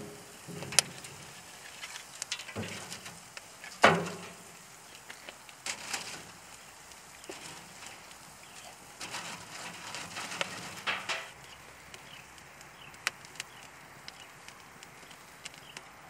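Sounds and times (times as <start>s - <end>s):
logs clunking on metal grate: 0.0s - 11.4s
wood fire crackling: 0.0s - 16.0s.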